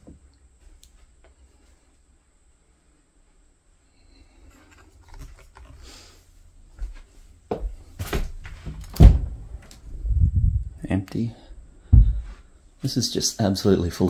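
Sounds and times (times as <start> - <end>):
faint clicks and rustles: 4.0 - 7.2
heavy thump: 8.9 - 9.7, 11.8 - 12.5
sharp knocks: 11.9 - 12.3.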